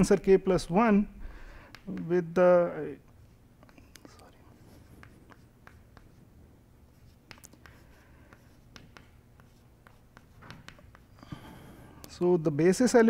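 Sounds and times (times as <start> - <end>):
low room hum: 0.0 - 13.0
writing on a board: 3.1 - 6.3, 6.9 - 11.4.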